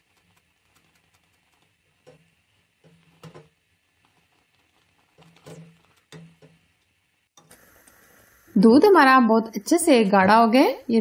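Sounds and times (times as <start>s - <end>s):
spatula scraping a saucepan: 4.0s - 6.5s.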